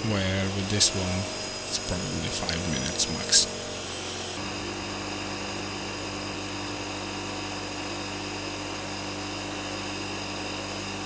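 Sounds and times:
wire wheel scratching metal: 0:00.0 - 0:04.4
bench grinder motor hum: 0:00.0 - 0:11.0.

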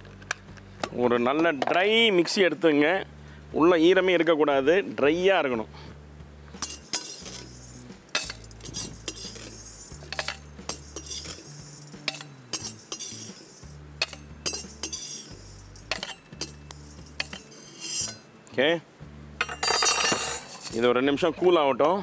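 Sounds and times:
metal ladle scraping steel pot: 0:06.6 - 0:18.4, 0:19.4 - 0:20.9.

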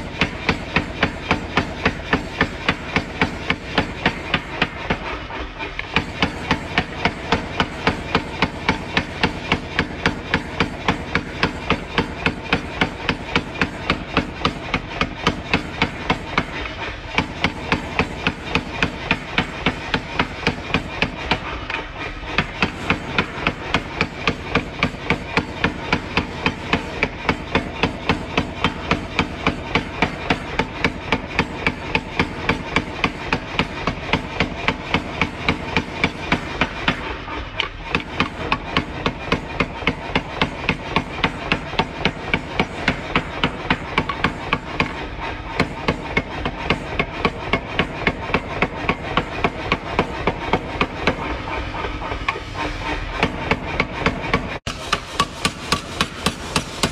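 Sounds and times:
power hammer pounding hot steel: 0:00.0 - 0:56.9.

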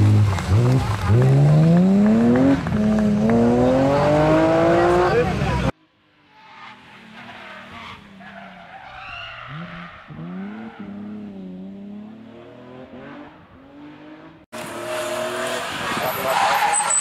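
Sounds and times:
car engine revving: 0:00.0 - 0:05.8, 0:09.4 - 0:16.5
tyre squeal: 0:06.3 - 0:10.9, 0:14.9 - 0:17.0.

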